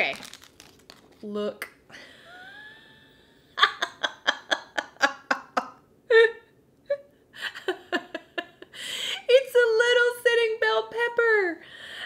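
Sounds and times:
woman laughing: 2.0 - 9.4.

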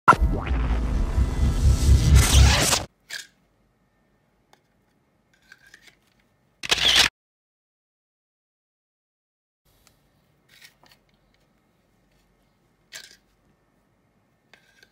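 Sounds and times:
intro music: 0.1 - 2.9.

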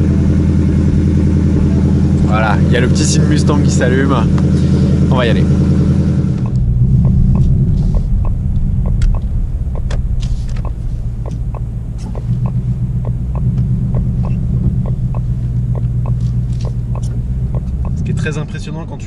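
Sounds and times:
car engine idling: 0.0 - 19.0
turn signal ticking: 6.3 - 18.2.

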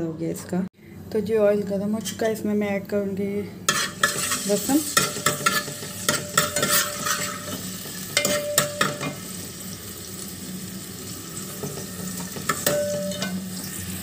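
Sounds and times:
spoon clinking and scraping pot: 3.7 - 9.2, 11.5 - 13.8
garlic sizzling in hot oil: 3.7 - 14.0.

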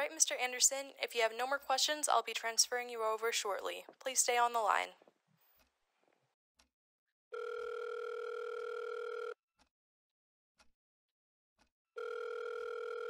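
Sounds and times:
telephone ringback tone: 7.3 - 9.4, 12.0 - 13.0.

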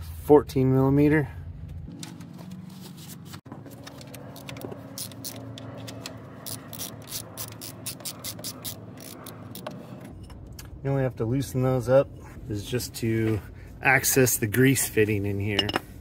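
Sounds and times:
hand ratchet clicking: 6.4 - 9.8.

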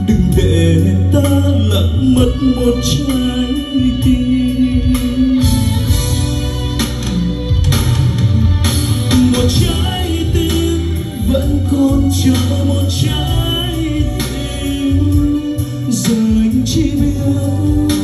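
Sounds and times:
song with heavy bass over pa: 0.0 - 18.0.

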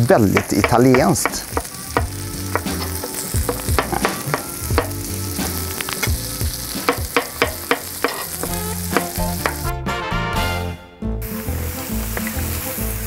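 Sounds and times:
food sizzling on a griddle pan: 0.0 - 9.7, 11.2 - 13.0
stirring strokes in a pan: 0.7 - 9.7.

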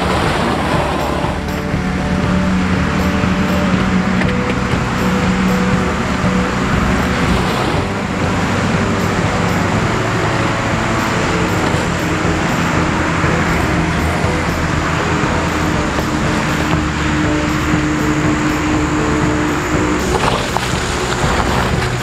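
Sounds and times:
car engine running: 0.0 - 22.0
constant rushing noise: 0.0 - 22.0.

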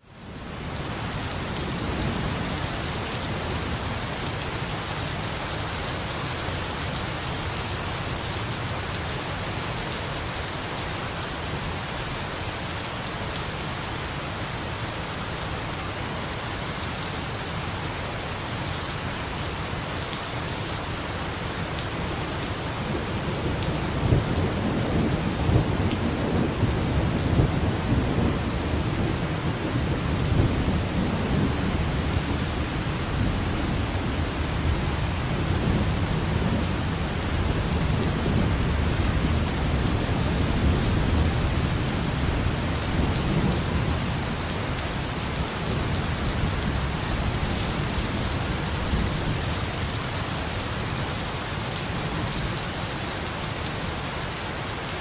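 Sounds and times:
heavy rain falling: 0.0 - 55.0
low rumble of thunder: 22.9 - 44.8.

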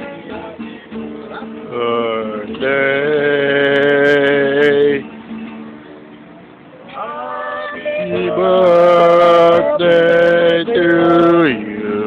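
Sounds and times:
acoustic guitars: 0.0 - 12.0
men singing in harmony: 7.0 - 12.0.

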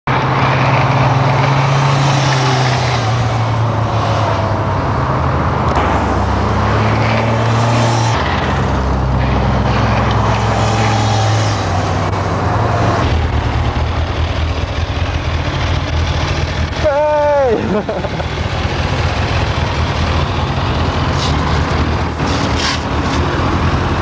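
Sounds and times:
motorcycle engine running: 13.0 - 22.1.

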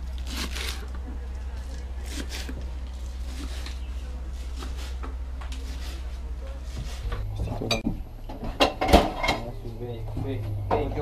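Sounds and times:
steady low hum: 0.0 - 11.0
cookware clicks and knocks: 7.7 - 9.5.

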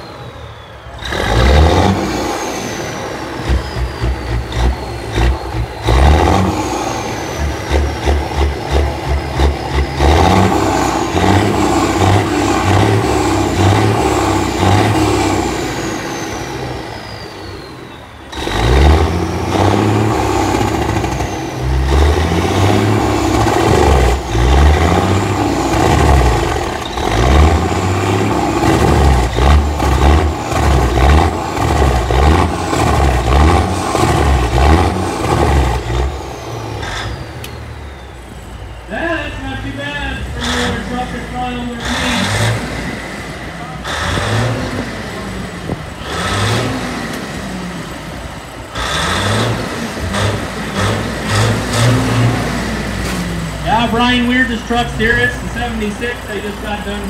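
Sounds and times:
high falling whistle: 0.0 - 7.6, 14.1 - 19.3
diesel truck engine revving: 0.0 - 57.0.

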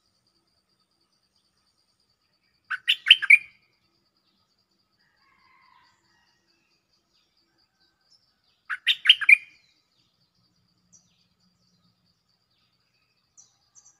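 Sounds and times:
bulbul singing: 2.4 - 3.8, 8.6 - 14.0.

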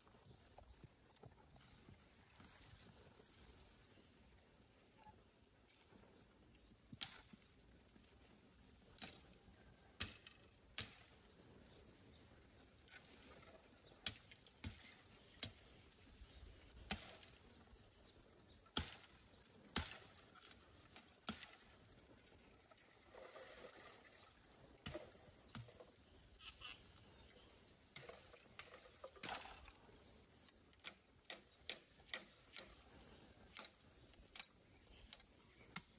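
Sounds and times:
blade striking bamboo: 16.8 - 17.4, 18.7 - 20.5, 21.2 - 21.7.

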